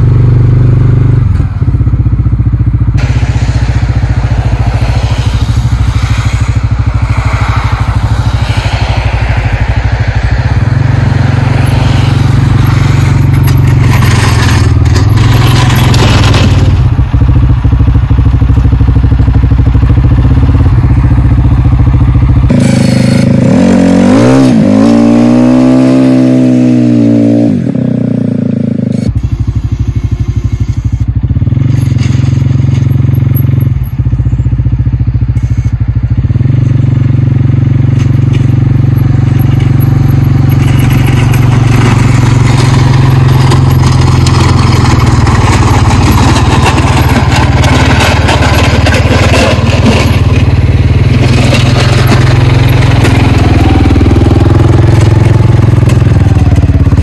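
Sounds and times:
scraping crackling noise: 3.0 - 17.3, 38.0 - 57.0
atv engine chugging: 29.0 - 57.0.

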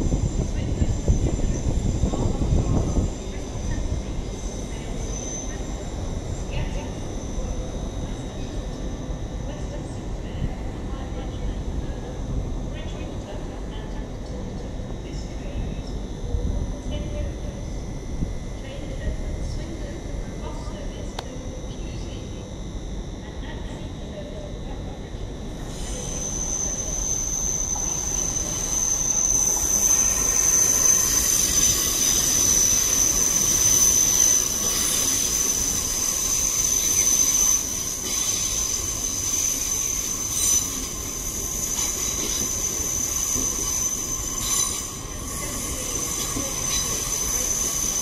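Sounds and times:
rumble of moving train: 0.0 - 48.0
train wheels squealing: 0.3 - 9.2, 25.6 - 48.0.

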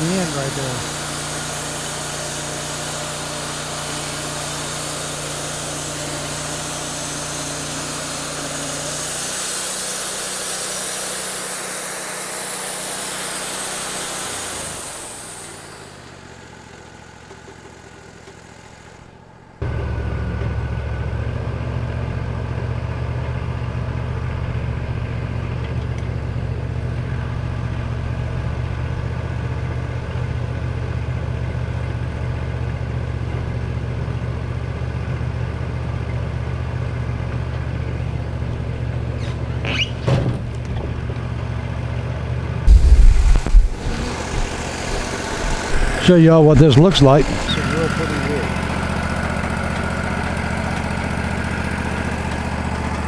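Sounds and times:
band blade cutting log with hiss: 0.0 - 19.0, 42.7 - 48.0
band sawmill engine running: 0.0 - 53.0.

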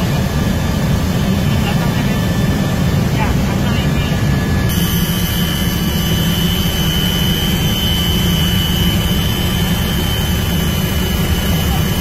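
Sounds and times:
helicopter engine and rotor drone: 0.0 - 12.0
thin high whine: 4.7 - 12.0.

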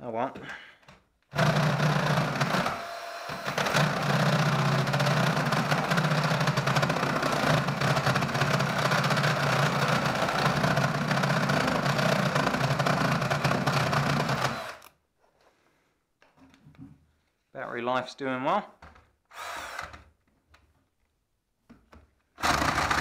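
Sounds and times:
cordless drill boring through wood: 1.3 - 14.9, 19.3 - 20.1, 22.4 - 23.0.

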